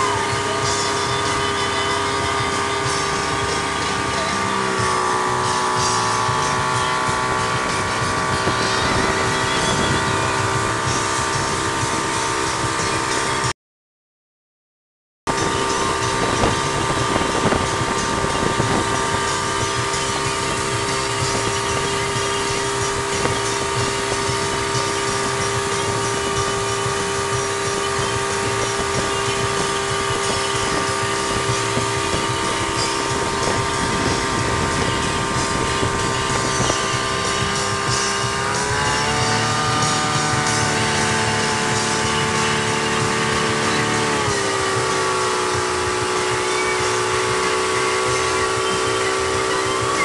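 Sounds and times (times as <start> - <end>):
wake rushing: 0.0 - 13.4, 15.3 - 50.0
outboard motor running: 0.0 - 13.5, 15.3 - 50.0
wind on microphone: 0.0 - 13.5, 15.3 - 50.0.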